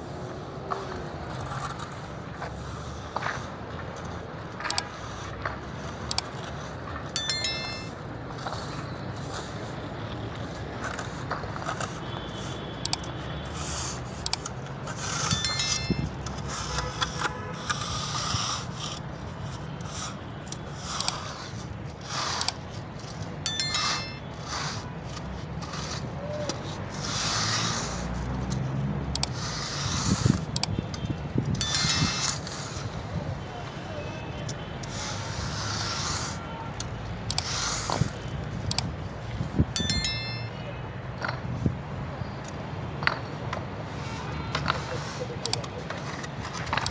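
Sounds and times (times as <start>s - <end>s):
sharp metallic clinks: 7.1s - 8.1s, 15.2s - 16.4s, 23.4s - 24.5s, 31.5s - 32.5s, 39.7s - 40.8s.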